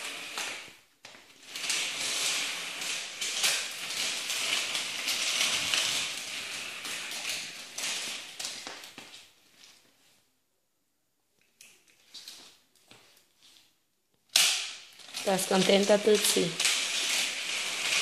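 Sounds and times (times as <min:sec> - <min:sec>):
toy stroller wheels rolling on tile: 0:00.0 - 0:09.9, 0:14.4 - 0:18.0.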